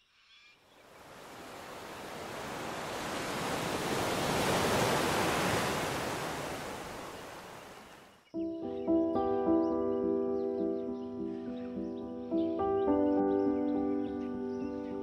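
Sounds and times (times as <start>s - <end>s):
ocean wave breaking: 0.9s - 8.1s.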